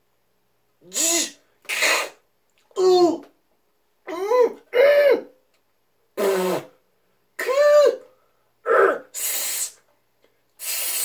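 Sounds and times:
man hissing: 0:00.8 - 0:02.2, 0:06.2 - 0:06.8, 0:07.4 - 0:09.8, 0:10.6 - 0:11.0
man yelling: 0:02.8 - 0:03.3, 0:07.4 - 0:08.1.

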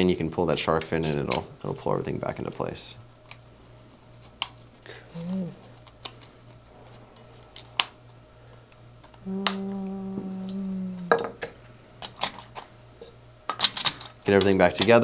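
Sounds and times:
low hum: 0:03.0 - 0:14.2
plastic parts clicking: 0:13.5 - 0:14.9.

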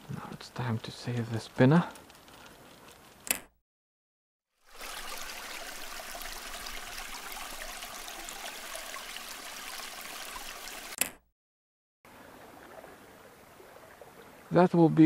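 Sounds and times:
stream water rushing: 0:04.6 - 0:11.0.

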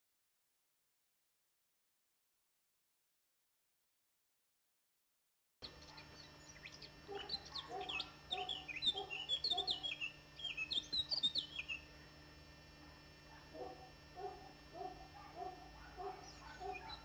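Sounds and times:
small birds chirping: 0:05.6 - 0:11.9, 0:14.9 - 0:17.0
faint low hum: 0:05.6 - 0:17.0.

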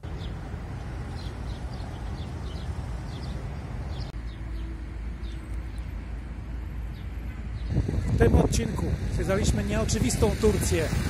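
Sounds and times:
small birds chirping: 0:00.0 - 0:06.0, 0:06.8 - 0:08.2.

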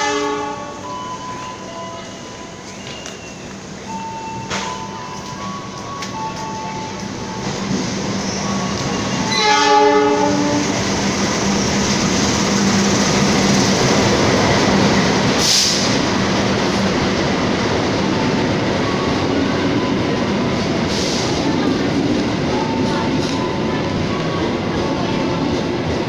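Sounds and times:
locomotive horn: 0:00.0 - 0:00.9, 0:09.2 - 0:10.8
train rumbling past: 0:00.0 - 0:26.0.

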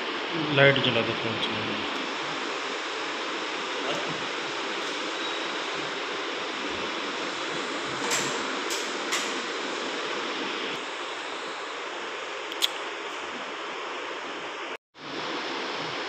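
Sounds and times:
steady rushing hiss: 0:00.0 - 0:16.0.

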